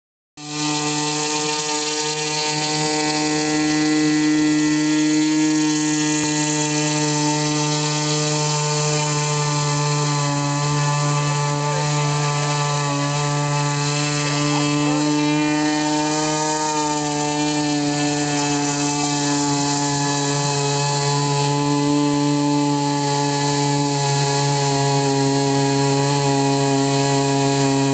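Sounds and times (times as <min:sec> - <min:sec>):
model airboat engine buzzing: 0:00.4 - 0:27.9.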